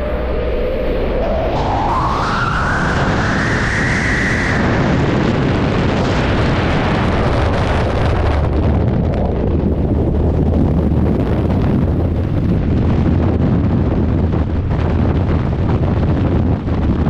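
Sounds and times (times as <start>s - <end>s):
rising whistle: 0.0s - 5.1s
wind rushing over microphone: 0.0s - 17.0s.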